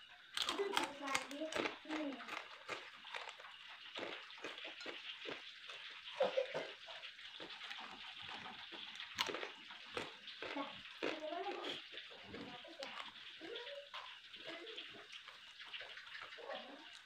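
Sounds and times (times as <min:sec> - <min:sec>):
person slurping and lip-smacking: 0:09.0 - 0:13.2.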